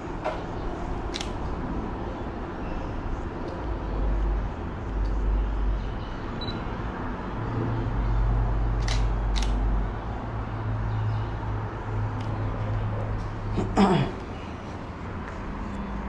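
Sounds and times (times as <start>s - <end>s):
camera shutter clicking: 8.8s - 9.6s.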